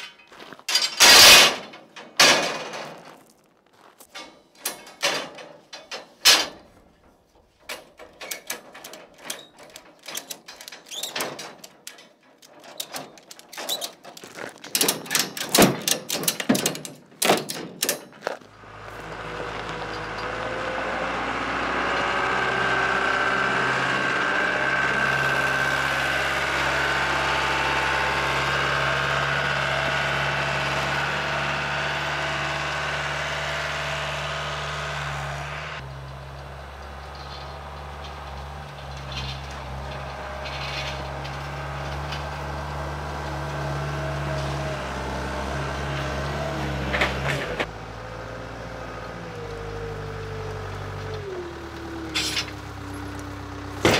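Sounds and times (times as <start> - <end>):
sharp metal clanks: 0.0 - 3.0, 7.6 - 18.2
diesel engine under load: 0.0 - 53.9.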